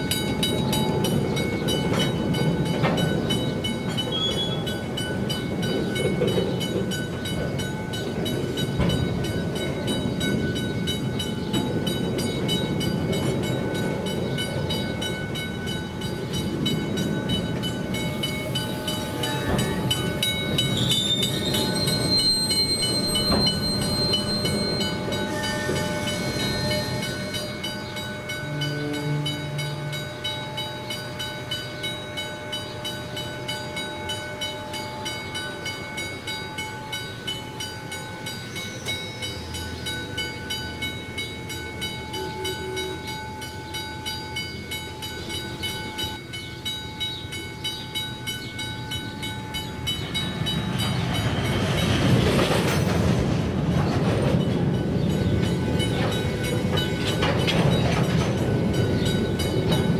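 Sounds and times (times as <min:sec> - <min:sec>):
wheels clacking over rail joints: 0:00.0 - 0:31.7, 0:45.0 - 0:59.9
crossing bell ringing: 0:00.0 - 0:59.9.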